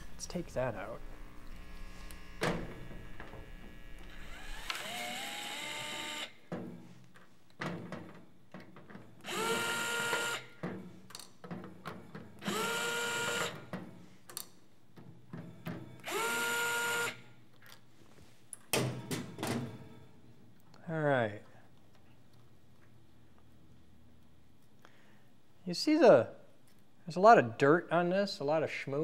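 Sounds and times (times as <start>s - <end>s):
electric screwdriver whining: 1.3s - 6.4s, 9.2s - 10.6s, 12.4s - 13.6s, 16.0s - 17.2s.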